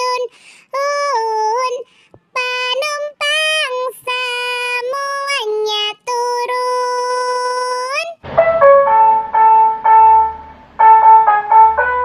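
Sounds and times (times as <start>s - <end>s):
child-like voice singing: 0.0s - 8.2s.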